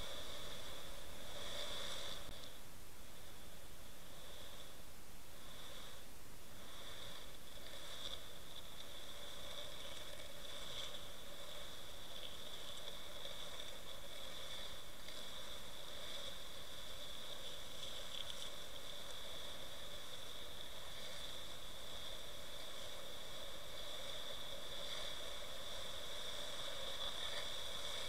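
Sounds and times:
constant high-pitched whine: 0:00.0 - 0:28.0
muffled hiss of underwater current: 0:00.0 - 0:28.0
faint ticks: 0:06.8 - 0:28.0.

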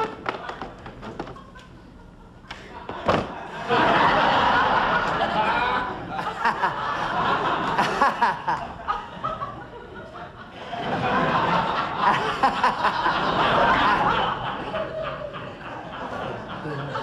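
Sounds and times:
audience laughter: 0:00.0 - 0:17.0.

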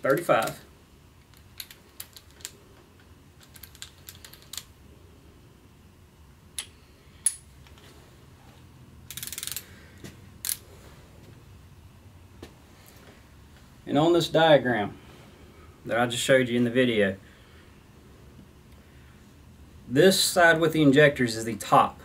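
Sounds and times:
torque wrench ratchet clicks: 0:09.1 - 0:09.6.

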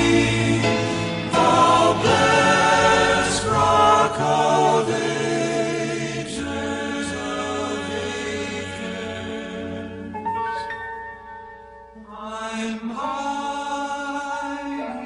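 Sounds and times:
male vocal quartet singing in harmony: 0:00.0 - 0:10.3, 0:12.0 - 0:15.0.

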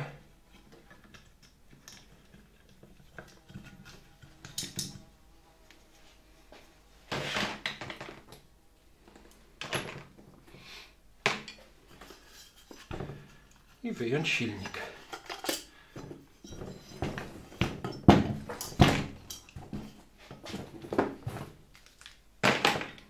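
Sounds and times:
plastic parts clicking and rustling: 0:00.5 - 0:05.0, 0:14.5 - 0:19.8, 0:20.7 - 0:23.0.

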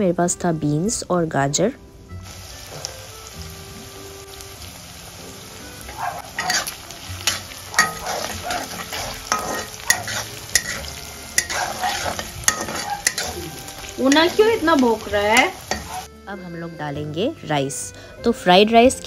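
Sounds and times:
food sizzling in hot oil: 0:01.5 - 0:16.2
metal spatula scraping a pan: 0:05.9 - 0:16.1.

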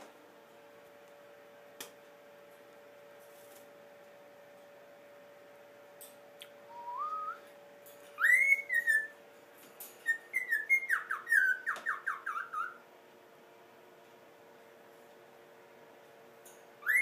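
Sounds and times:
cockatiel whistling: 0:08.2 - 0:09.2, 0:10.0 - 0:12.8, 0:16.8 - 0:17.0.

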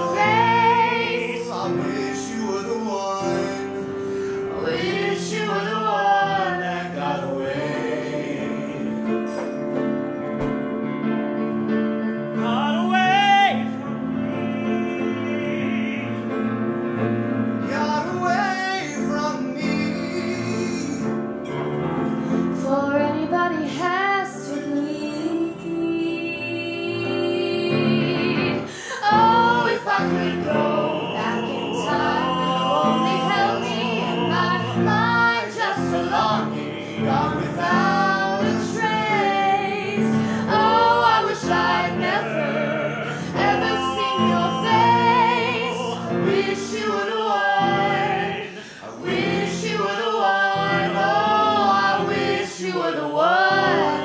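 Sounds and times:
man and woman singing pop ballad: 0:00.0 - 0:09.6, 0:22.6 - 0:54.0
piano accompaniment: 0:00.0 - 0:54.0.

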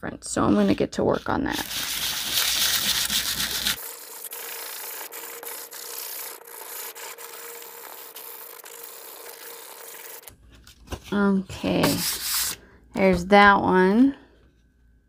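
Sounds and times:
nail file scraping cardboard: 0:00.6 - 0:10.3.

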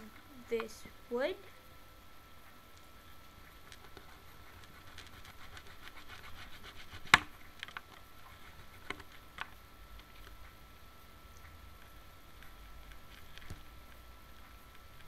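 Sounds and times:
stick being cut scratching: 0:03.8 - 0:07.3.

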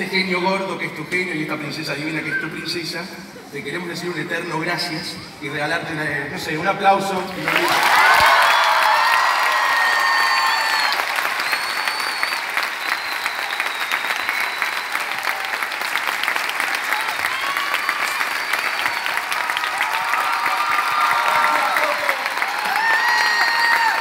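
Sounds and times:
audience applauding: 0:07.4 - 0:24.0.

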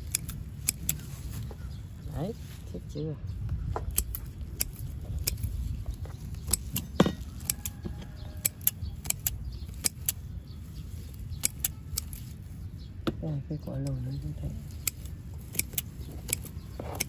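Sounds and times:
scissors snipping stems: 0:00.0 - 0:02.2, 0:03.8 - 0:12.4, 0:13.6 - 0:17.0
steady low rumble: 0:00.0 - 0:17.0.

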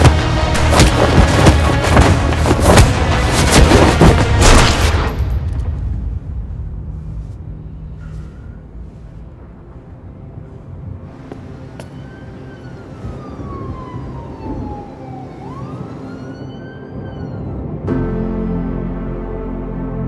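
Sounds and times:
low steady rumble: 0:04.5 - 0:11.8
siren wailing: 0:11.5 - 0:17.8.

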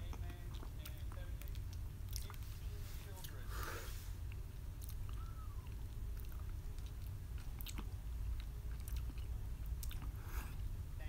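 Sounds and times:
person chewing noodles: 0:00.0 - 0:10.8
steady low hum: 0:00.0 - 0:11.0
short breath: 0:03.5 - 0:04.2
wet mouth clicks and smacks: 0:04.3 - 0:10.2.

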